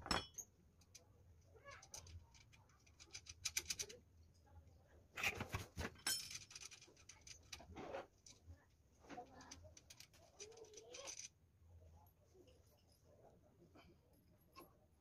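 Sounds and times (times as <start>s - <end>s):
small metal parts clicking: 1.7s - 4.0s, 6.0s - 7.6s, 9.3s - 11.4s
scraping and handling noises: 5.2s - 11.4s.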